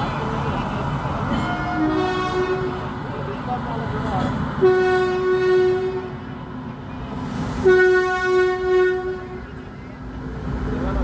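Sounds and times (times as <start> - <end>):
train rumbling on tracks: 0.0 - 11.0
locomotive horn blasts: 1.3 - 2.8, 4.6 - 6.2, 7.6 - 9.6.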